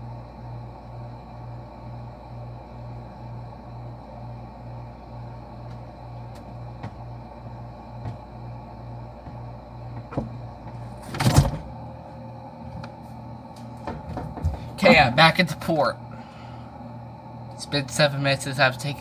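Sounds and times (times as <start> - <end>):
refrigerator hum: 0.0 - 19.0
fridge door opening knock: 9.2 - 11.7, 13.8 - 14.7.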